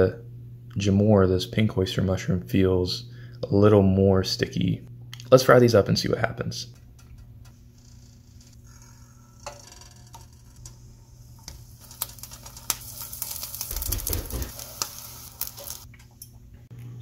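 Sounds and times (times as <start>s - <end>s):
patties frying with small pops: 9.4s - 16.4s
butter sizzling in a skillet: 11.2s - 15.9s.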